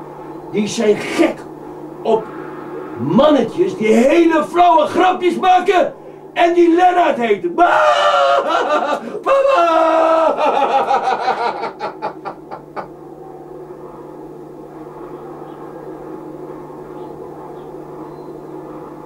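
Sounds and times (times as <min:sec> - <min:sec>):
steady low hum: 0:00.0 - 0:19.0
burst of laughter: 0:08.2 - 0:09.2, 0:10.2 - 0:12.9.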